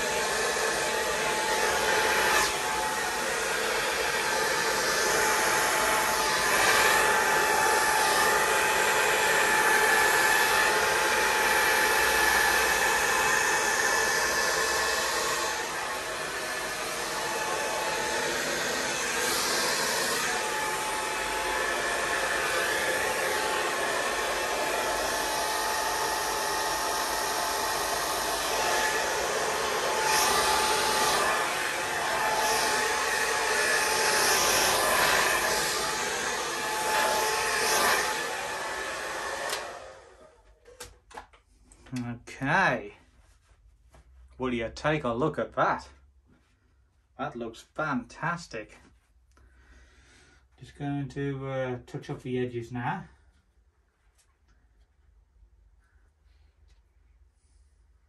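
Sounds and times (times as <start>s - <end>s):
heat gun blowing air: 0.0s - 40.3s.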